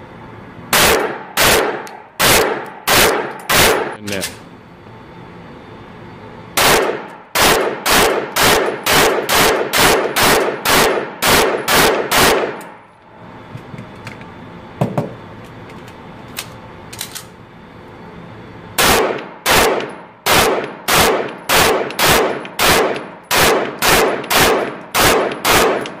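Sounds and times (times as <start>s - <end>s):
pistol shots echoing indoors: 0.7s - 4.0s, 6.6s - 12.7s, 18.8s - 26.0s.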